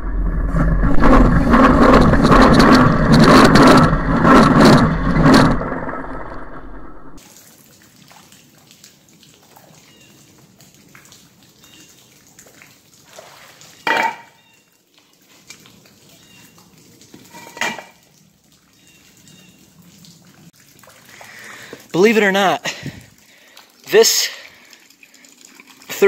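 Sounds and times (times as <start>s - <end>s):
faint dripping water: 7.2s - 26.0s.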